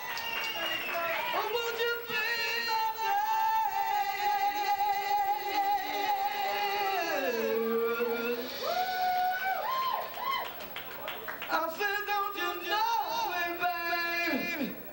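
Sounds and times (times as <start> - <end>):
singer holding long high note: 0.6 - 10.0.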